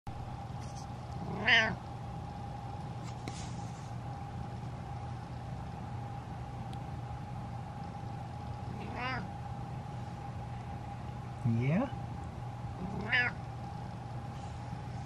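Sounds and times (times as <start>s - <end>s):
steady background hum: 0.1s - 15.0s
cat meowing: 1.2s - 1.8s, 8.7s - 9.3s, 12.8s - 13.4s.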